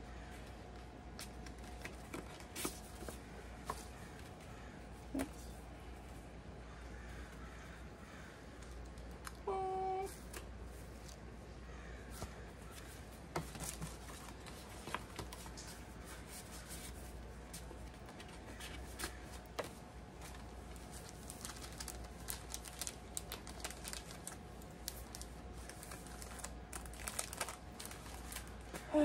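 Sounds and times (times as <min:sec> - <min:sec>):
paper card rustling: 0:00.7 - 0:04.4.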